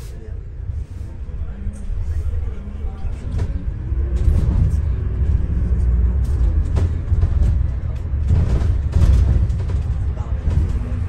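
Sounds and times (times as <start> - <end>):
bus engine and road rumble: 0.0 - 11.0
bodywork knocks and rattles: 6.1 - 11.0.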